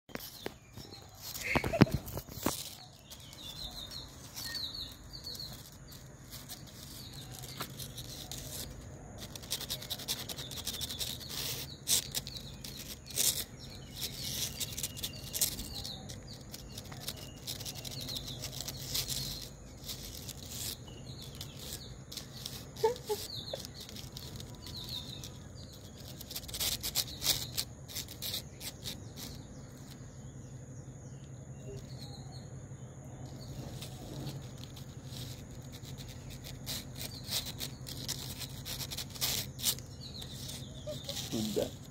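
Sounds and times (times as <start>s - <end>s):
claws scratching and tapping: 0.1s - 30.1s, 33.2s - 41.9s
small birds chirping: 0.1s - 41.9s.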